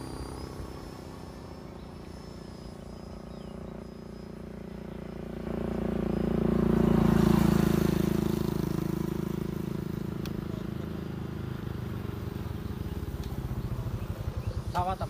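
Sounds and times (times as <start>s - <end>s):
electric ducted fan whine: 0.0s - 15.0s
low steady rumble: 0.0s - 15.0s.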